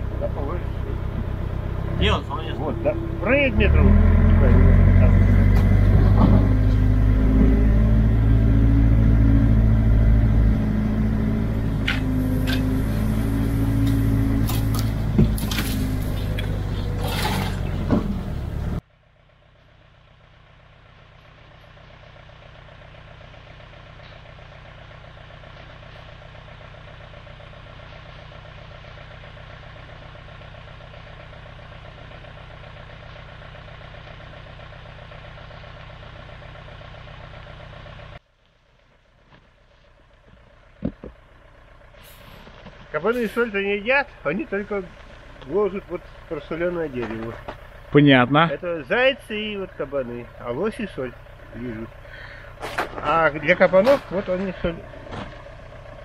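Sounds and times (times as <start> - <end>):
loud engine running: 0.0 - 56.0
quiet steady engine: 0.0 - 56.0.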